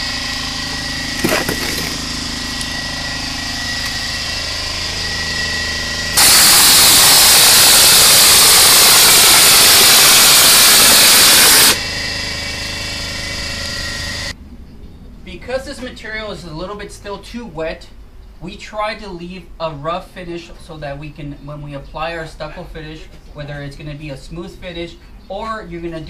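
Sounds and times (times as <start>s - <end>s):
air compressor running: 0.0s - 14.4s
steady high whine: 0.0s - 17.2s
hopper gun spraying mortar: 6.2s - 11.8s.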